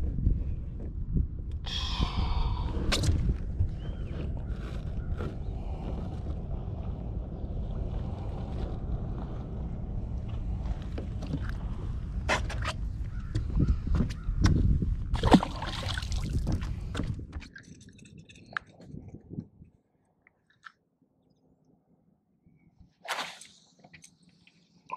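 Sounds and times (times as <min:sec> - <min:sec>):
wind rumbling on microphone: 0:00.0 - 0:19.8
water sloshing: 0:15.1 - 0:18.7.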